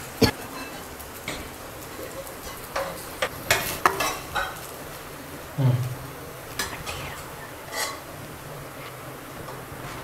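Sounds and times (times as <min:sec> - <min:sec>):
faint sizzle: 0:00.0 - 0:10.0
steel spatula scraping metal pan: 0:07.6 - 0:08.1.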